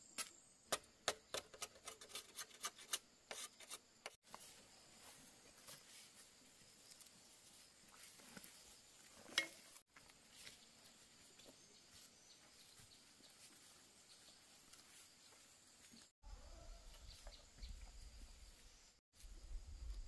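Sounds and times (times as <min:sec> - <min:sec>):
faint ticks and rustle: 0:04.3 - 0:16.1.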